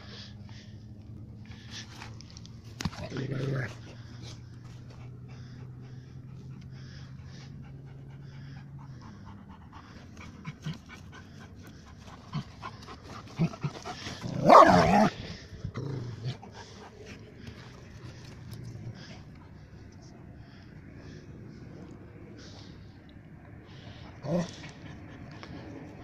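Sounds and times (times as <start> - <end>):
paws scraping dirt: 0.1 - 22.8
puppy growling: 2.9 - 4.2, 5.0 - 19.6
puppy panting: 2.9 - 14.4, 16.3 - 22.9.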